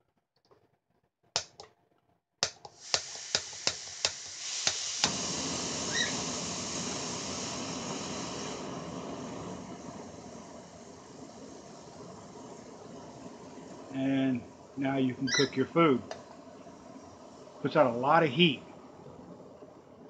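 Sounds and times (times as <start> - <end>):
igniter clicking: 2.4 - 5.2
gas hissing from valve: 2.4 - 18.6
stove burner rushing: 2.6 - 18.6.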